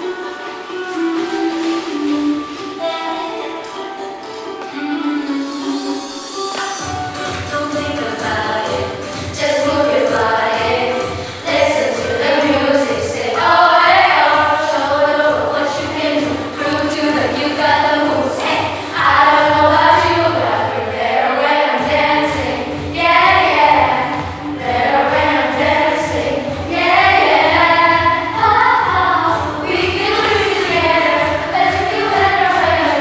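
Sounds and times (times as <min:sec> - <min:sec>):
backing music with beat: 0:00.0 - 0:20.5, 0:21.7 - 0:33.0
children singing: 0:07.9 - 0:33.0.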